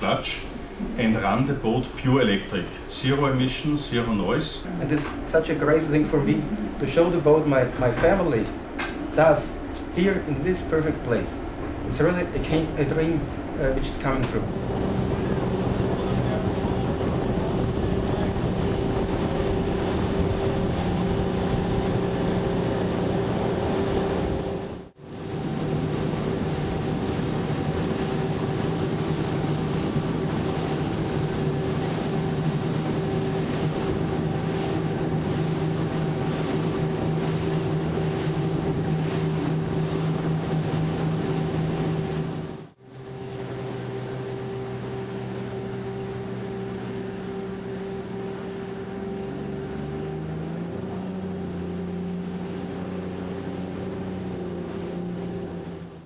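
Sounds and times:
motorboat drive drone: 0.0 - 56.0
rushing water and wind: 0.0 - 56.0.

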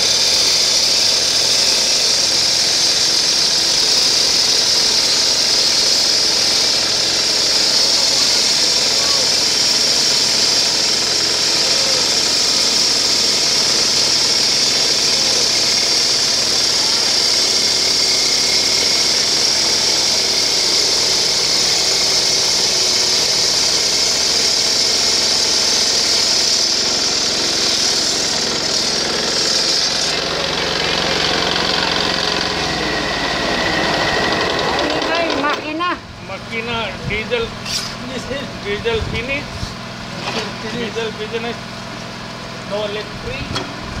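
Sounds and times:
stone-cutting saw grinding hiss: 0.0 - 41.6
machine motor hum: 2.3 - 35.8.

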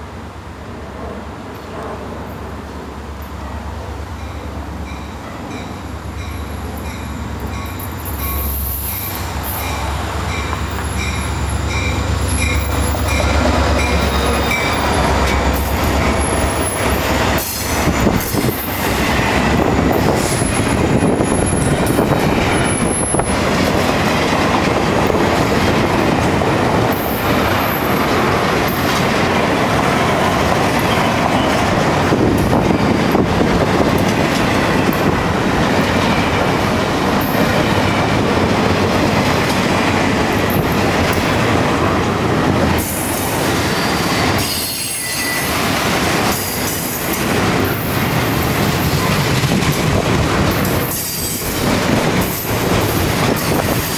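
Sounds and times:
diesel locomotive engine drone: 0.0 - 53.9
train wheels on rails: 0.0 - 53.9
high wheel squeal: 8.1 - 9.9, 42.8 - 45.6.

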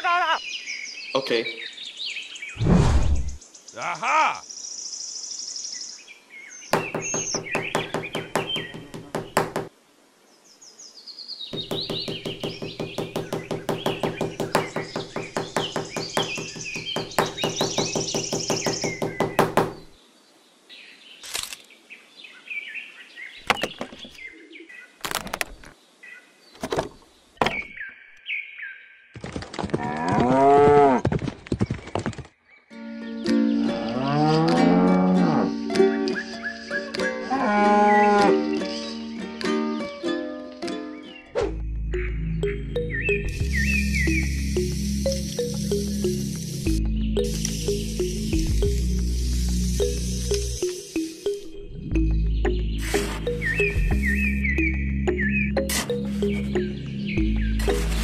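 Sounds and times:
birds chirping: 0.0 - 29.2, 30.4 - 39.3, 40.8 - 58.0
small hammer tapping: 6.8 - 9.7, 11.6 - 19.9.

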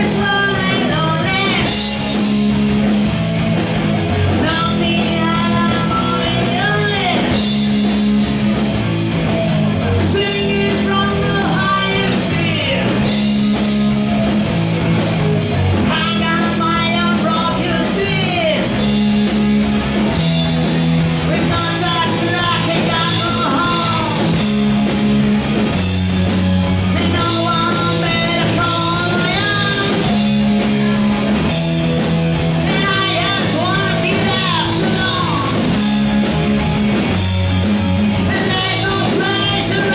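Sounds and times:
person singing: 0.0 - 2.1, 4.2 - 7.6, 9.9 - 13.1, 15.8 - 18.9, 21.2 - 24.5, 26.8 - 30.4, 32.6 - 35.8, 38.2 - 39.9
metal band playing live: 0.0 - 39.9.

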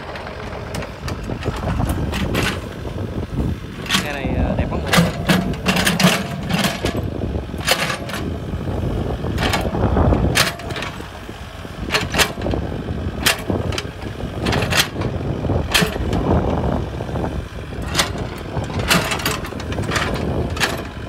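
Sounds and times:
excavator diesel engine running: 0.0 - 21.0
bucket knocks and clanks: 4.8 - 7.0.

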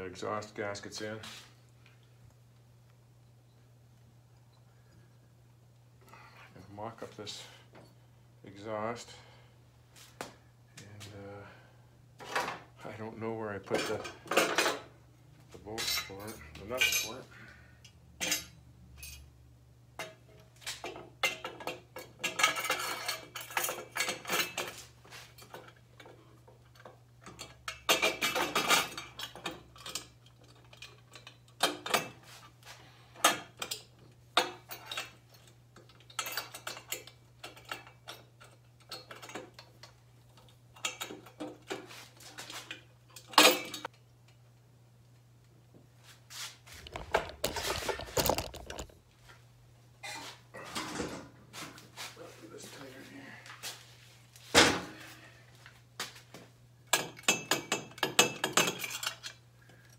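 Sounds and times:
metal parts clinking and rattling: 25.4 - 32.2, 46.8 - 49.0, 56.9 - 59.4.

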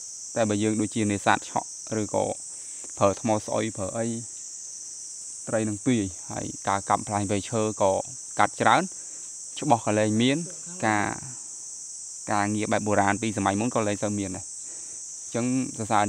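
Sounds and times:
insects droning: 0.0 - 16.0
man talking: 0.4 - 2.4, 3.0 - 4.3, 5.5 - 8.9, 9.6 - 11.4, 12.3 - 14.4, 15.3 - 16.0.

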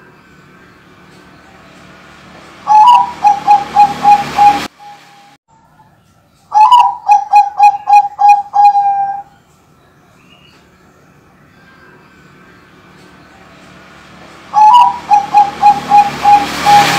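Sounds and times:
dove cooing: 2.7 - 4.7, 6.5 - 9.3, 14.5 - 16.9.

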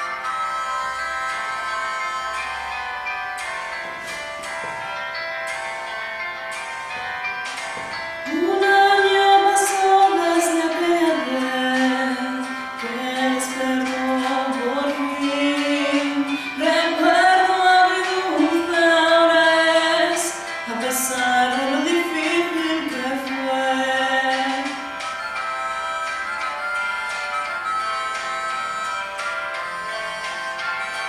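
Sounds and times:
woman singing unaccompanied: 8.2 - 24.9.

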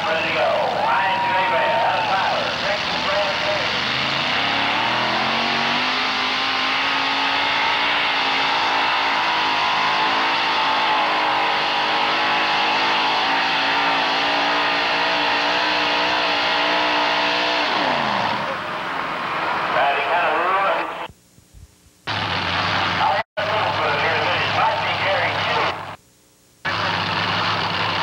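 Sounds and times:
truck engine running flat out: 22.1 - 25.9, 26.7 - 28.0.

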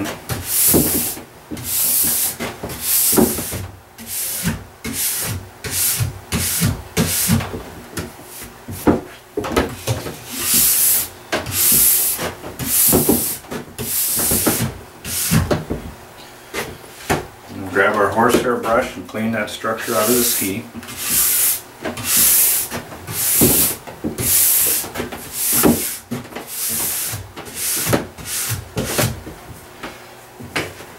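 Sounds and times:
brush scratching on ski base: 19.8 - 22.6.

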